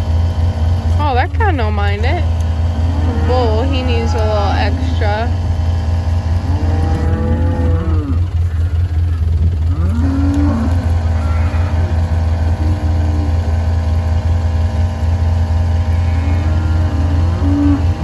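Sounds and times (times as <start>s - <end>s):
engine hum: 0.0s - 18.0s
cattle mooing: 2.0s - 5.4s, 6.2s - 14.4s, 15.6s - 18.0s.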